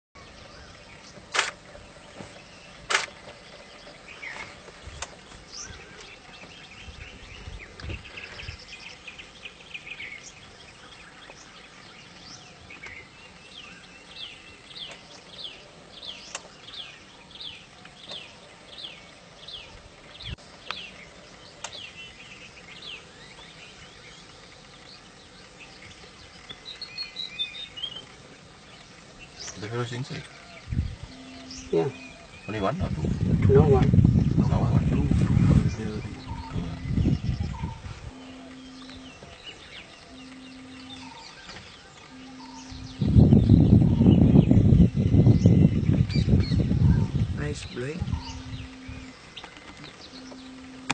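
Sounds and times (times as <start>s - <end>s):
wild birds chirping: 0.2s - 50.9s
sharp clicks: 1.3s - 1.6s, 2.8s - 3.4s
rippling bird trill: 29.2s - 34.9s, 35.6s - 50.9s.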